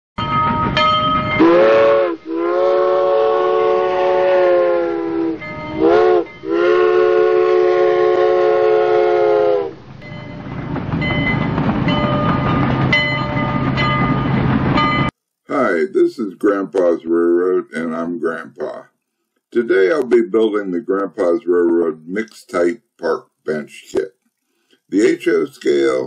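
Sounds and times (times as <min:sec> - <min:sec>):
steam locomotive chime whistle: 0:00.2 - 0:15.2
train rumble and hiss: 0:00.6 - 0:18.8.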